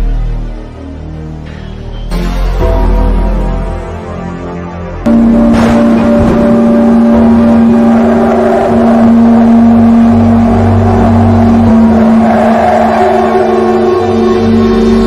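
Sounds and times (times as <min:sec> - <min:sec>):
deep horror score drone: 0:00.0 - 0:15.0
low rumble: 0:05.1 - 0:15.0.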